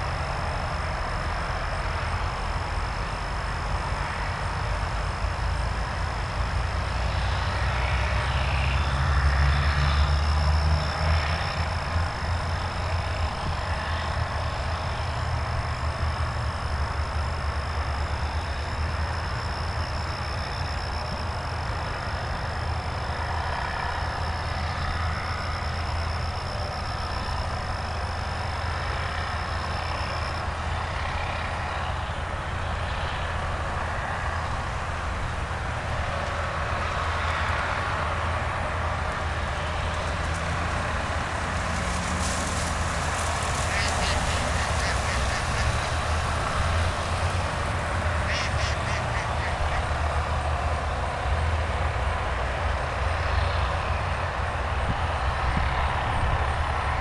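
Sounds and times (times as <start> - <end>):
low mechanical drone: 0.0 - 57.0.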